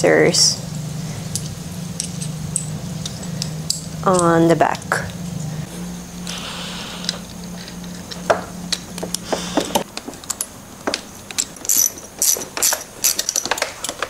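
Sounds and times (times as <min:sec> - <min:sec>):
metal clicks and clinks of bolts: 0:10.2 - 0:14.0.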